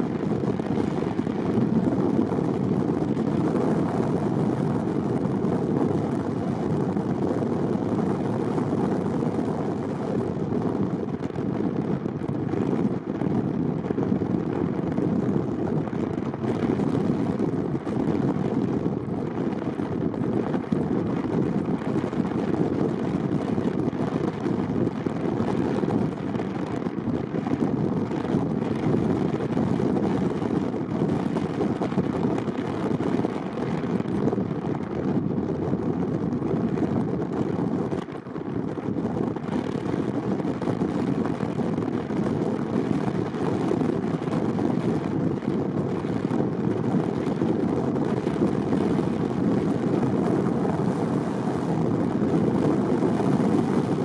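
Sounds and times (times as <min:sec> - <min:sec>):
car road noise rumble: 0:00.0 - 0:54.0.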